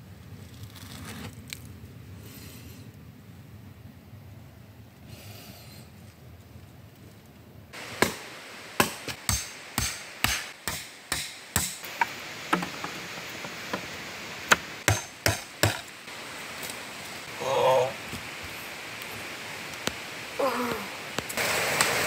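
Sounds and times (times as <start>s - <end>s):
machete chopping wood: 8.0s - 8.2s, 8.8s - 13.0s, 14.5s - 15.9s.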